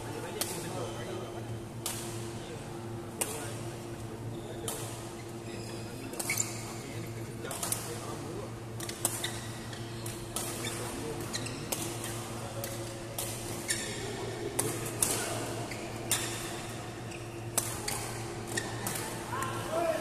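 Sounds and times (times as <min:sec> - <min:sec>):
steady hall hum: 0:00.0 - 0:20.0
shoes squeaking on court: 0:05.1 - 0:06.9, 0:08.8 - 0:19.2
racket hitting shuttlecock: 0:14.6 - 0:15.2, 0:17.5 - 0:19.2.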